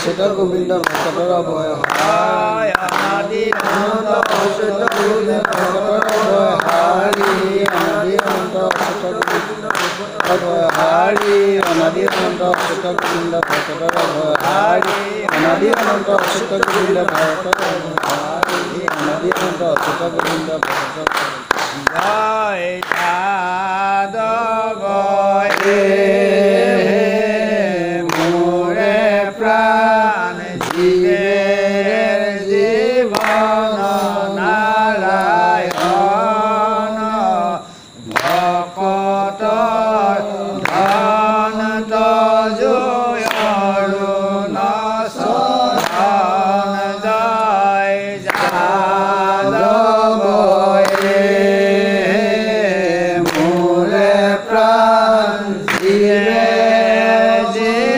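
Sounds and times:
sharp percussion beat: 0.0s - 23.4s
voices chanting devotional song: 0.0s - 57.9s.

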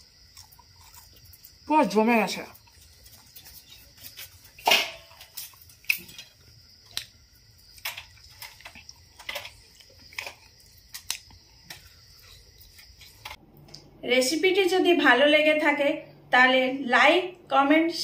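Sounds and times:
crunchy chewing: 0.0s - 13.7s.

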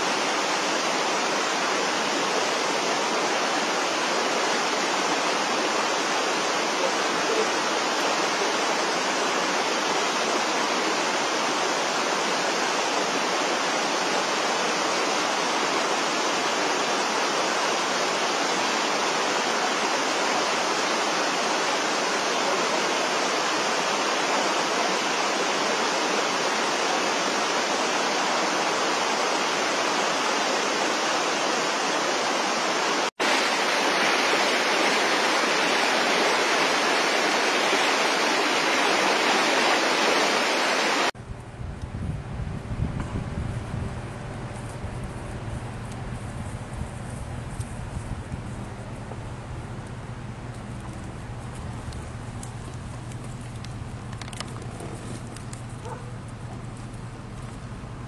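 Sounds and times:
creek rushing over rocks: 0.0s - 41.2s
river white-water rapids: 0.0s - 41.2s.

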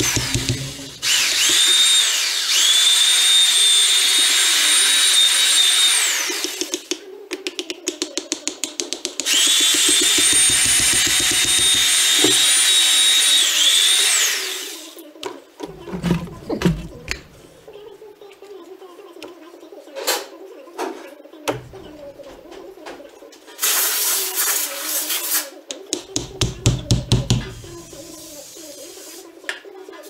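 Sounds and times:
power tool motor whining: 0.0s - 6.6s, 9.3s - 14.8s.

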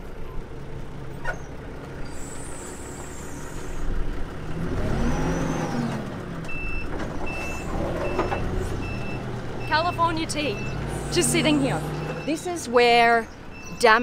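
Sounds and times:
forklift engine revving: 0.9s - 12.5s
reversing alarm beeping: 6.5s - 12.5s, 13.5s - 14.0s.

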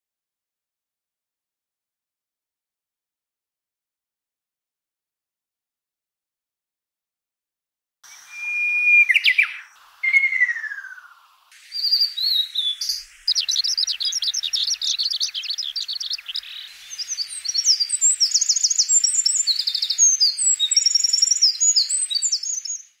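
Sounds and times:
songbirds singing: 8.0s - 23.0s.

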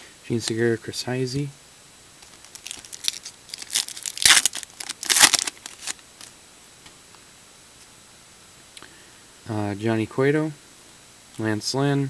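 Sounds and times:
wrapper being torn and crinkled: 2.2s - 6.3s.

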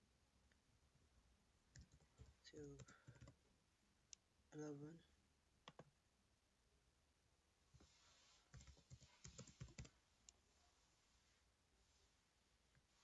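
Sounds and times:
faint keyboard typing: 1.7s - 3.5s, 5.6s - 6.0s, 8.5s - 10.4s.

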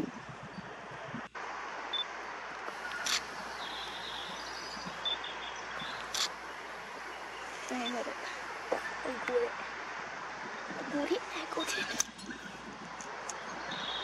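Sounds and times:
rushing background noise: 0.0s - 14.0s
sharp clicks: 2.6s - 3.3s, 6.0s - 6.4s.

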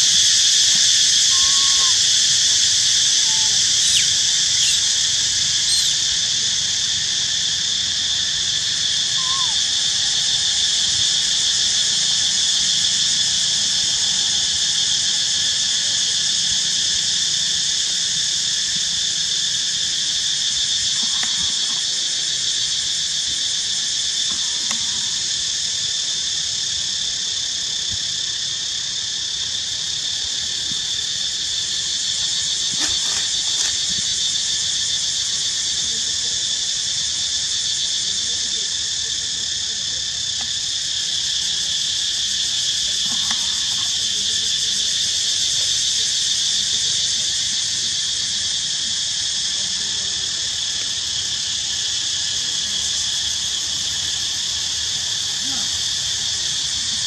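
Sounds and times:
insect chorus buzzing: 0.0s - 57.0s
young monkeys squeaking: 1.3s - 2.0s, 3.1s - 6.0s, 9.2s - 9.6s, 32.7s - 33.9s.

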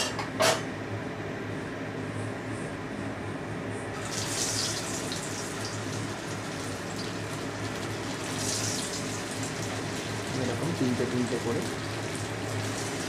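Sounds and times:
hot oil sizzling: 4.0s - 13.0s.

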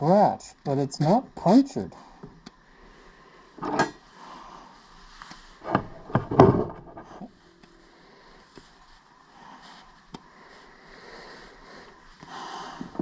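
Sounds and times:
knocks on a wooden workbench: 5.7s - 7.0s.

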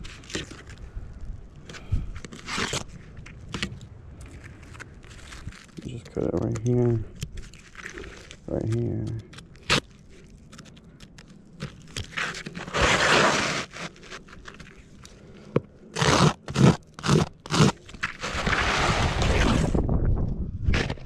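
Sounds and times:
scraping on roof shingles: 12.0s - 14.8s, 16.0s - 19.8s.

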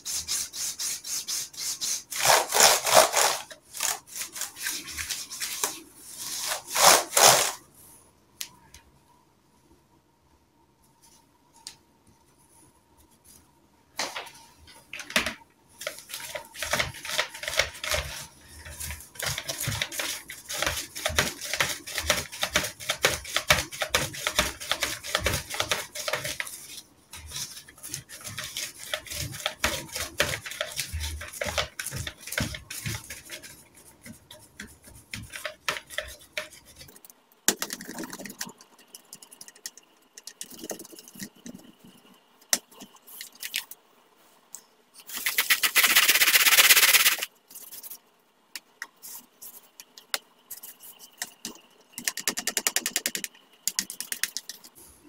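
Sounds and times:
wipe rubbing laptop screen: 0.0s - 7.6s, 15.8s - 37.0s.

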